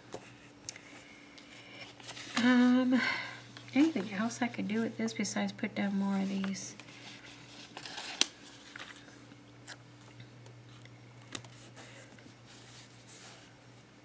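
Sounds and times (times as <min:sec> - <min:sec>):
faint steady hum: 0:00.0 - 0:14.0
paper rustling: 0:06.2 - 0:09.8.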